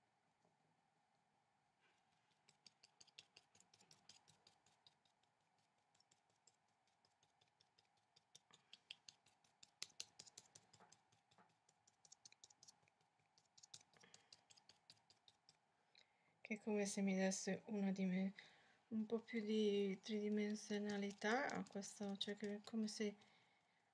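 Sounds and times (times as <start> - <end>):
paintbrush tapping on paper: 20.1 - 23.0.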